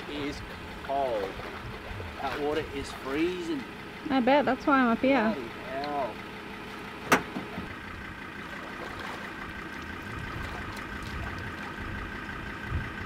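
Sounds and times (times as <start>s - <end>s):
vehicle engine idling: 0.0s - 13.0s
water lapping against boat: 0.0s - 13.0s
dull thump: 7.0s - 7.7s.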